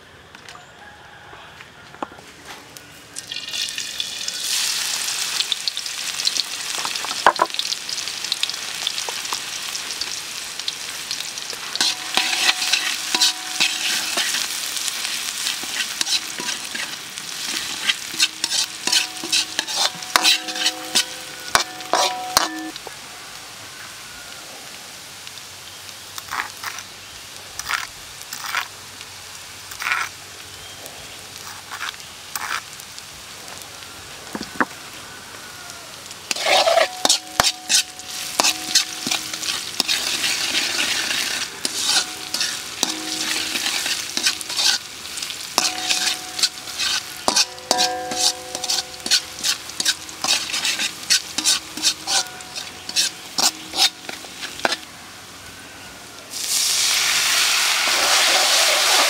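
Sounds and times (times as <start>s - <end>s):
oil sizzling in a wok: 3.1s - 59.0s
metal ladle clinking on wok: 11.8s - 14.6s, 17.5s - 22.8s, 36.3s - 40.4s, 41.3s - 44.8s, 45.6s - 54.8s.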